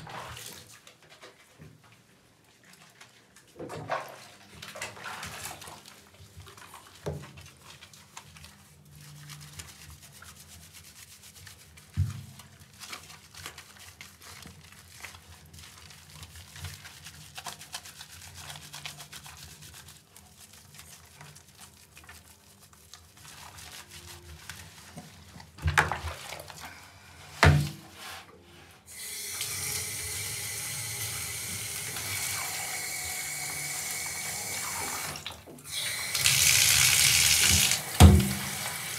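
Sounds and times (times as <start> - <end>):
lather squelching and splashing: 2.6 - 26.8, 33.5 - 38.9
hand shower water hissing: 29.0 - 38.9.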